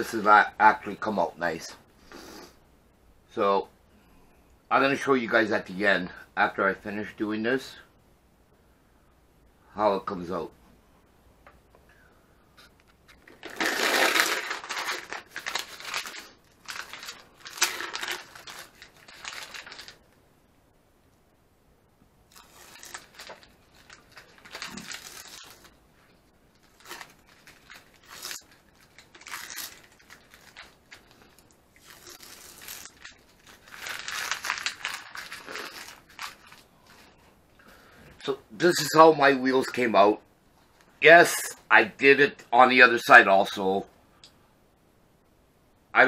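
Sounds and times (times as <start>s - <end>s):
tape peeling and crumpling: 12.8s - 20.1s, 22.3s - 25.8s, 26.5s - 37.1s.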